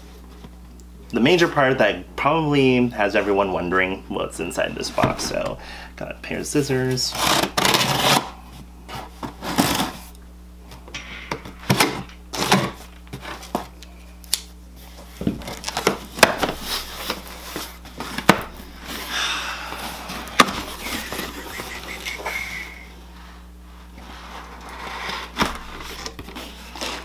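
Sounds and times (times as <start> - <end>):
scissors cutting packing tape: 7.2 - 8.2
cardboard rustling: 14.8 - 19.1, 19.8 - 22.2, 23.9 - 27.0.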